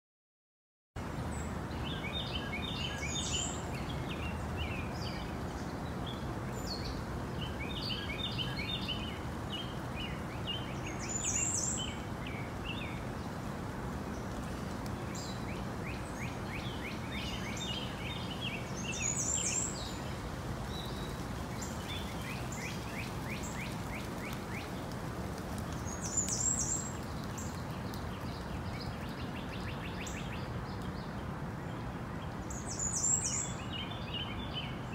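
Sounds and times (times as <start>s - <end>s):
birds chirping: 1.3s - 13.5s, 14.1s - 34.9s.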